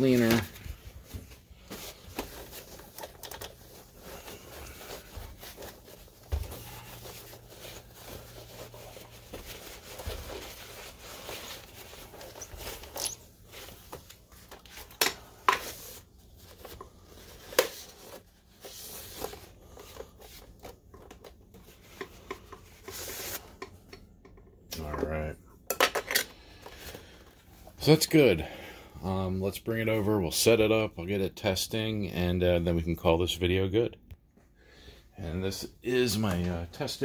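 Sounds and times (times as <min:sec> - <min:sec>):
paper towel rubbing plastic: 0:01.6 - 0:13.9.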